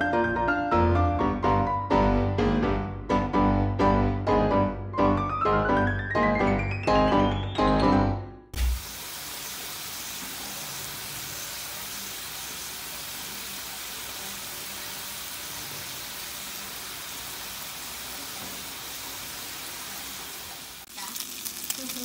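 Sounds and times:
pork sizzling on a grill pan: 8.6 - 22.0.

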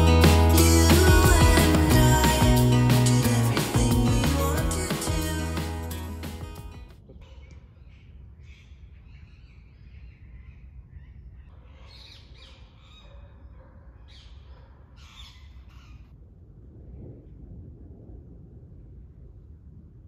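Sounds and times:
low rumble: 0.0 - 7.2, 16.1 - 20.0.

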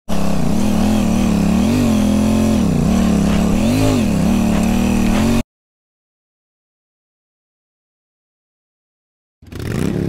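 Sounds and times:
motorcycle engine revving: 0.1 - 5.4, 9.4 - 10.0.

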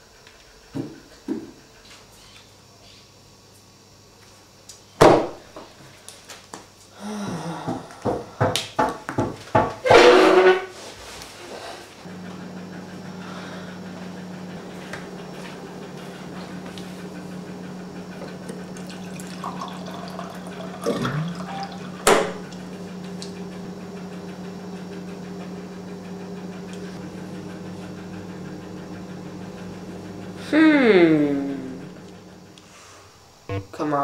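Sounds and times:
steady low hum: 11.9 - 34.0
water running into plastic cup: 18.5 - 22.0
loud sound falling in pitch: 33.5 - 33.8.

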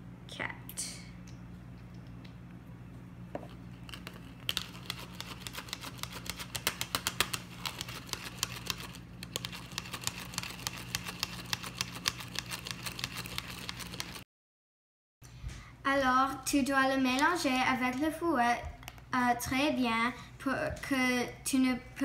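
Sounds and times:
faint steady hum: 0.0 - 14.2.

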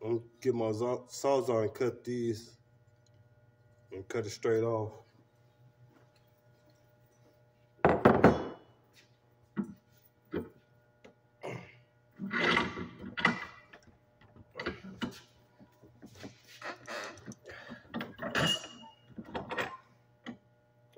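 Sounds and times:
metal pipes clanking and clattering: 16.0 - 19.9.

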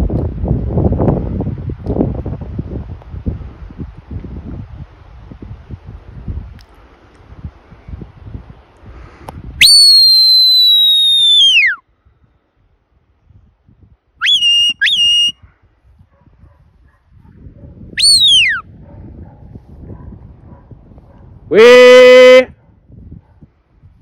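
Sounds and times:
faint wind noise: 0.0 - 24.0
shepherd's whistle: 9.6 - 11.8, 14.2 - 15.5, 18.0 - 18.6.

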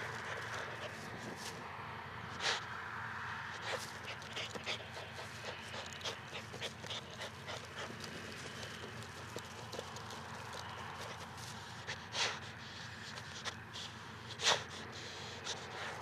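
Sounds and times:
dog panting: 0.0 - 1.6, 3.5 - 16.0.

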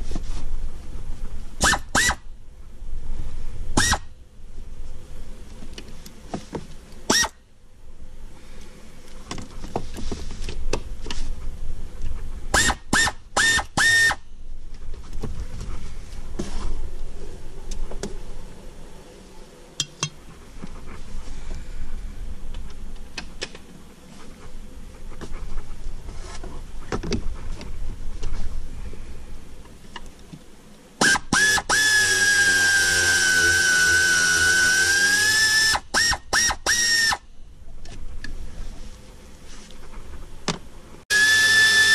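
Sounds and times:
air wrench whining: 1.6 - 2.2, 3.8 - 4.1, 7.1 - 7.4, 12.5 - 14.2, 31.0 - 37.2, 41.1 - 41.9.

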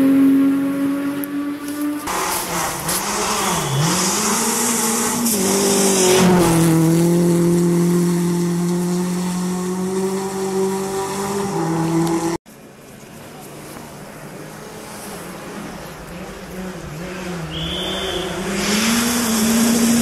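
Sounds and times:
rally car engine revving: 0.0 - 12.4, 14.0 - 20.0.

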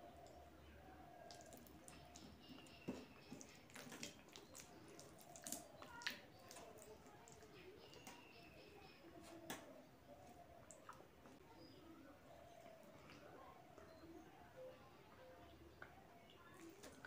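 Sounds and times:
wet clicks and squishes of eating: 1.1 - 11.4, 12.6 - 14.0, 15.7 - 17.0.

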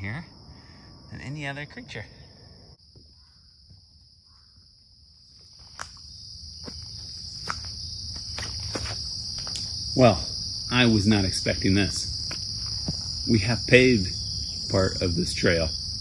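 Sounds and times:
crickets chirping: 0.0 - 16.0
footsteps crunching on trail: 2.9 - 9.9, 12.1 - 13.3.

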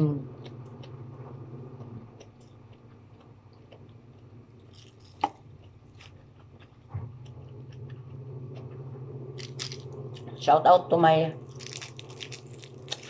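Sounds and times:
person chewing: 1.7 - 8.7, 9.4 - 10.3, 11.4 - 13.0.

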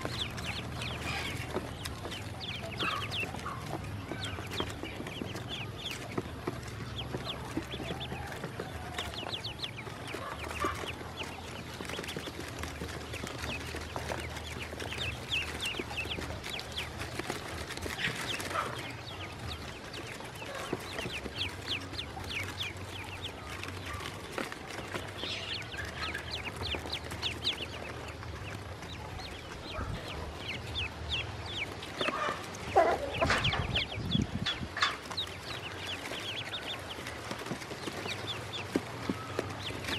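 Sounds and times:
ducklings peeping: 0.0 - 39.9.

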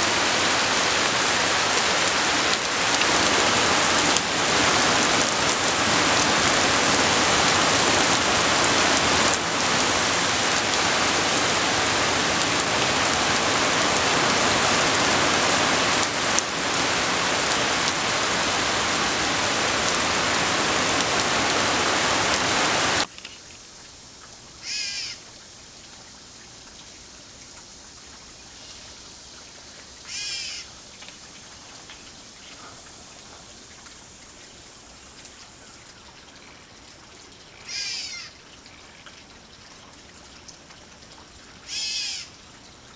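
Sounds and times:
heavy rain pouring: 0.0 - 27.4.

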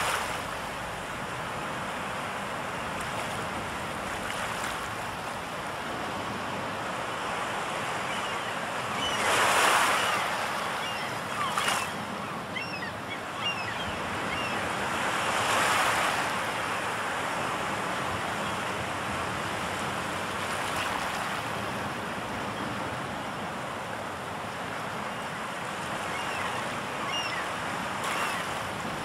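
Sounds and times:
waves washing onto shore: 0.0 - 29.0
faint bird calls: 7.8 - 14.8, 25.9 - 28.6.

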